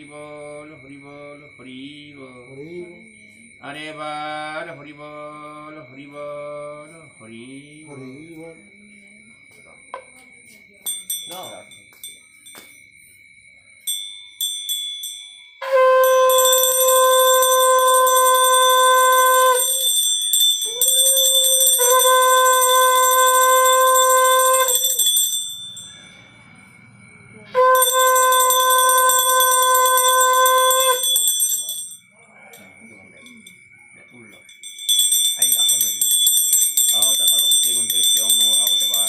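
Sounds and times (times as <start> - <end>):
small hand bell ringing: 7.9 - 27.0, 27.6 - 39.0
conch shell blasts: 15.6 - 25.9, 27.6 - 32.0.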